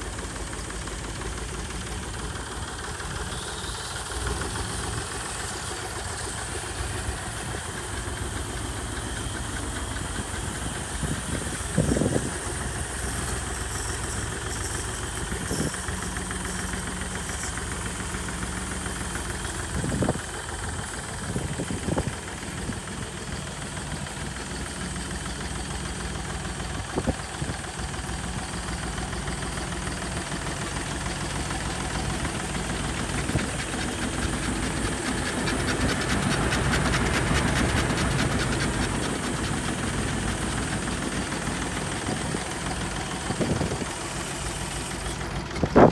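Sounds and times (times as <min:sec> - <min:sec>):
tractor engine idling: 0:00.0 - 0:45.9
water spraying hiss: 0:02.8 - 0:45.5.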